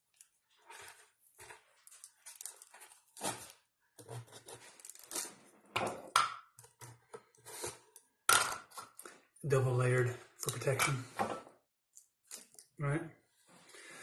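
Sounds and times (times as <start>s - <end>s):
paper and tape tearing: 4.2s - 5.4s.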